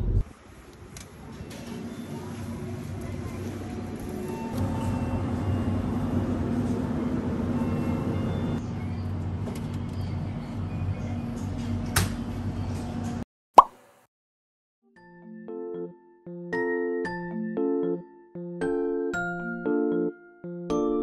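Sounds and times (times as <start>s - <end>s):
shop noise: 0.1s - 13.2s.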